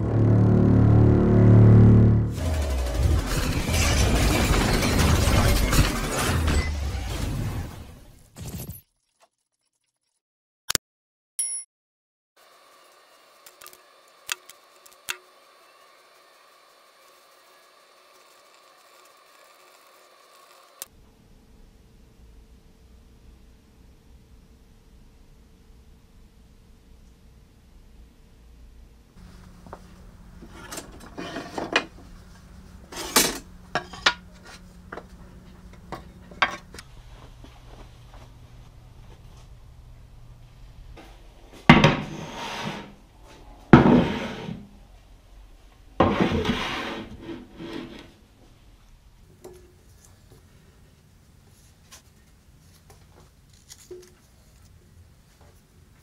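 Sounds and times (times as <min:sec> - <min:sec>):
intro sound effect: 0:00.0 - 0:04.5.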